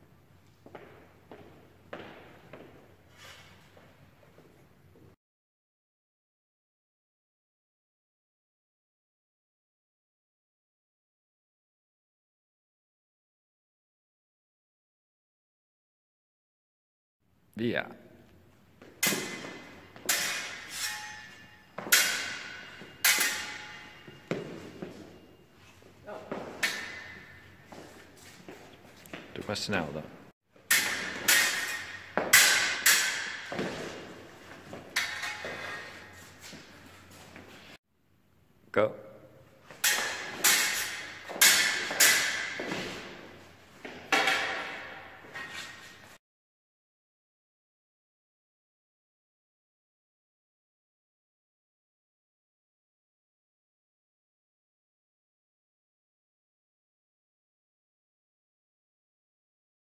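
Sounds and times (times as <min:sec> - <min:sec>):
fencing blades clashing: 0:18.8 - 0:28.5, 0:30.6 - 0:37.8, 0:39.7 - 0:46.2.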